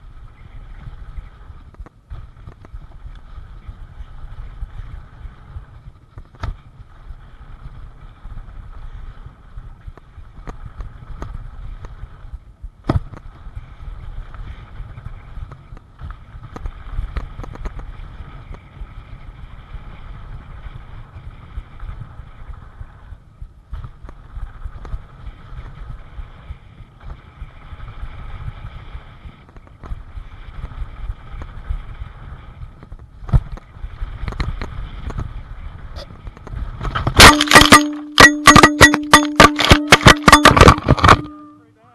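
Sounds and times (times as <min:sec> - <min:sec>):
wind rushing over microphone: 0:00.0 - 0:37.2
low rumble of bike tyres: 0:00.0 - 0:37.4
bike clicks and rattles: 0:00.3 - 0:41.6
sharp knock: 0:37.2 - 0:41.6.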